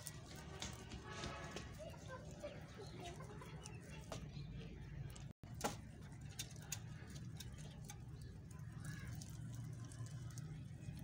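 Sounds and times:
rabbits chewing greens: 0.0s - 11.0s
leaves rustling: 5.8s - 11.0s.

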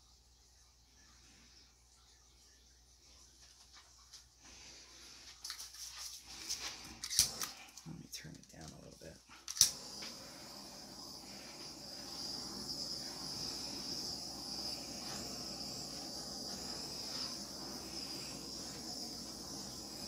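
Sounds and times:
handheld torch hissing: 6.2s - 7.8s, 9.5s - 20.0s.

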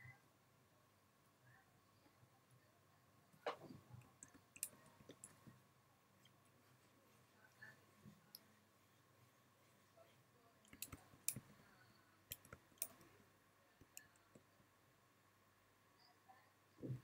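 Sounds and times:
faint steady hum: 0.0s - 17.0s
computer mouse and key clicks: 3.5s - 5.5s, 10.6s - 11.5s, 12.3s - 13.1s.

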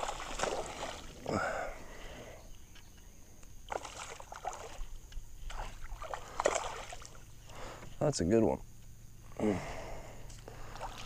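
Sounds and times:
fish splashing at water surface: 0.0s - 1.2s, 3.7s - 4.9s, 5.5s - 7.3s.

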